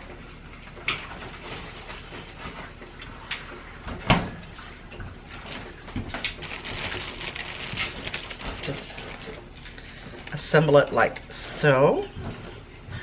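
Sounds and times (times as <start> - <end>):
plastic bag rustling: 5.3 - 11.4.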